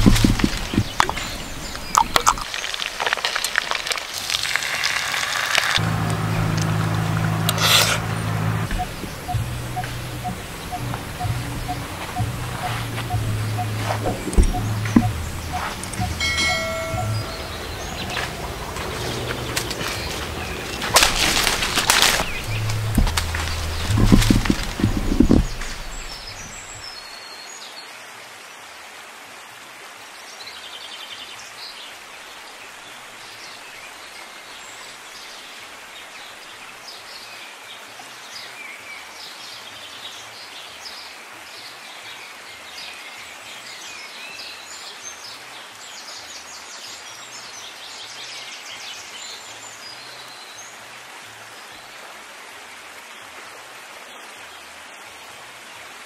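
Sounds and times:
birds chirping and calling: 5.8s - 26.8s.

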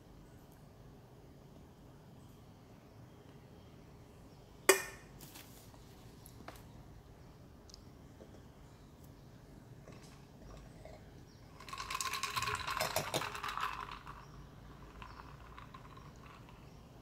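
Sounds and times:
ice cubes clinking in a glass: 11.6s - 14.3s.

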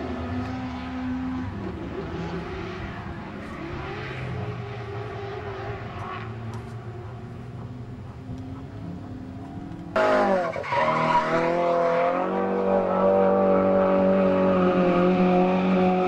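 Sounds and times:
car engine at high revs: 0.0s - 16.0s
tyre squeal: 10.0s - 11.9s.

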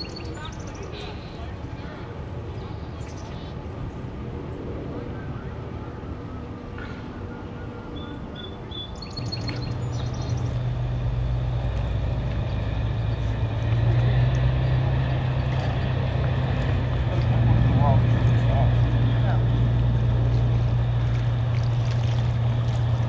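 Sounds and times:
tugboat engine drone: 0.0s - 23.0s
small birds chirping: 7.4s - 10.7s.

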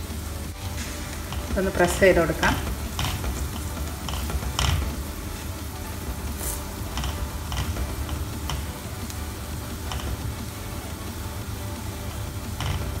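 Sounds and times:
bread sizzling in a pan: 0.0s - 13.0s.

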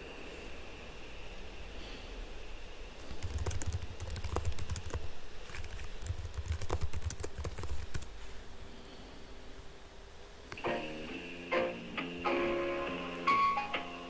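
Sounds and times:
keyboard typing clicks: 3.1s - 8.1s.

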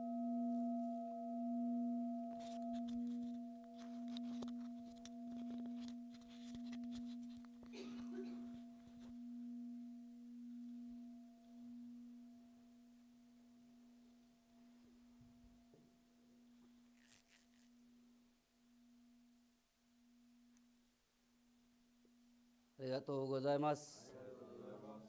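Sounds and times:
bowl bell ringing: 0.0s - 14.4s
faint rustle: 16.6s - 17.8s.

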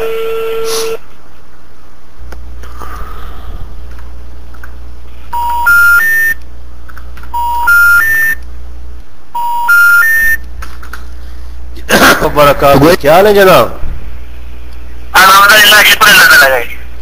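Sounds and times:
low phone line hum: 0.0s - 11.9s, 14.2s - 17.0s
rising telephone beeps: 5.3s - 6.4s, 7.4s - 8.4s, 9.4s - 10.4s.

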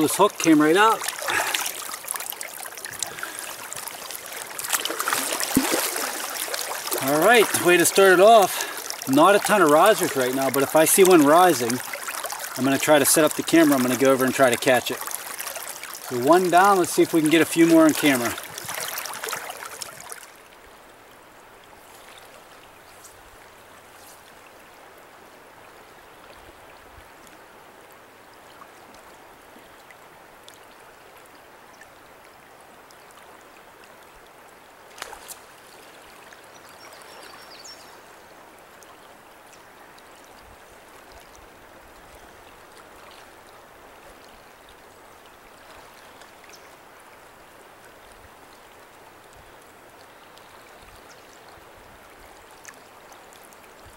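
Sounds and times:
river current rushing: 0.0s - 26.6s.

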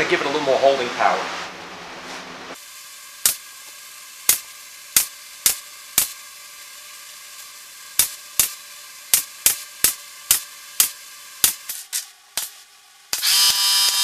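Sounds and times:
pneumatic stapler firing: 3.2s - 3.5s, 4.2s - 6.2s, 7.9s - 14.0s.

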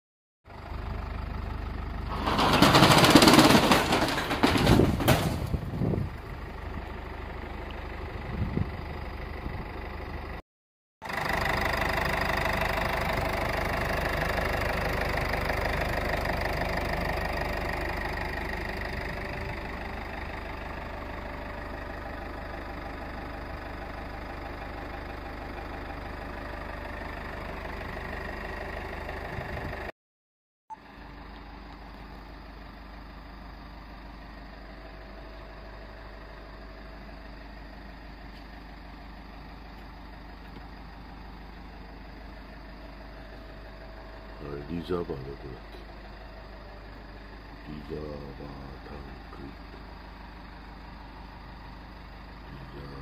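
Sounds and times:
car engine idling: 0.5s - 10.4s, 11.0s - 29.9s, 30.8s - 53.0s
engine noisy burst: 2.0s - 6.1s.

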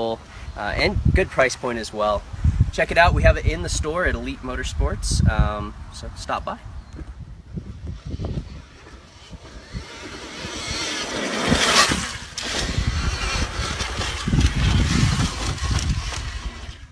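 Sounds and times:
electric dirt bike passing: 7.4s - 16.9s.

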